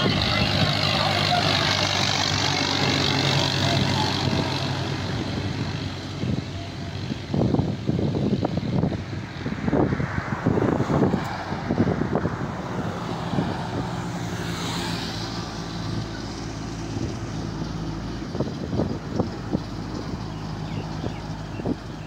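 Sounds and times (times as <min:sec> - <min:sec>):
truck diesel engine humming: 0:00.0 - 0:09.5, 0:10.9 - 0:22.0
wind crackling on microphone: 0:00.0 - 0:22.0
car driving by: 0:08.8 - 0:17.9.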